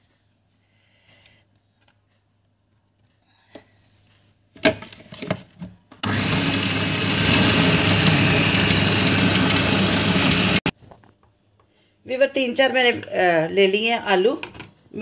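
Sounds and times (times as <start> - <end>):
food processor motor running: 6.0 - 10.7.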